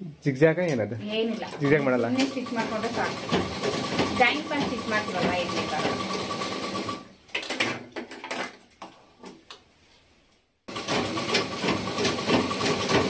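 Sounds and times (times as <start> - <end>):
sewing machine stitching: 1.2 - 7.1, 10.7 - 13.0.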